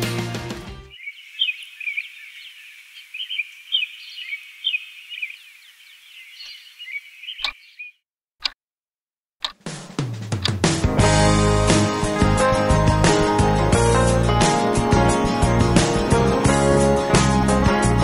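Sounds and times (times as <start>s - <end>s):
music: 0.0s - 0.9s, 9.6s - 18.0s
small birds chirping: 0.9s - 8.6s.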